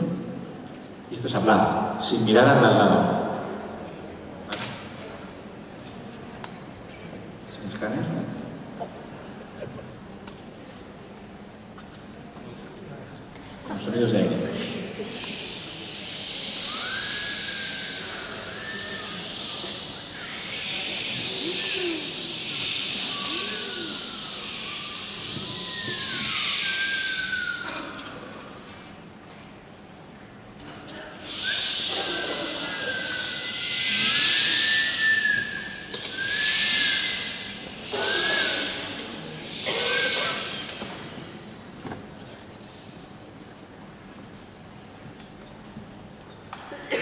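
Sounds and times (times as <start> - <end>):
people making hissing air sounds: 14.4 - 28.9, 31.1 - 42.0
faint sliding pitched tones: 15.0 - 28.2.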